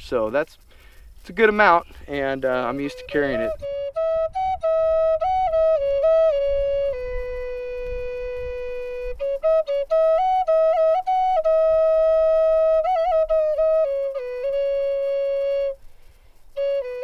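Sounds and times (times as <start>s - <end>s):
solo flute melody: 2.5s - 17.0s.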